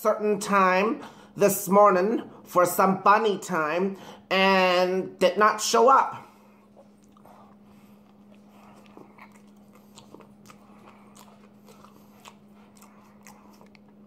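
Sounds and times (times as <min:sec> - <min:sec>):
steady low hum: 0:00.0 - 0:14.0
chewing mouth clicks: 0:06.6 - 0:14.0.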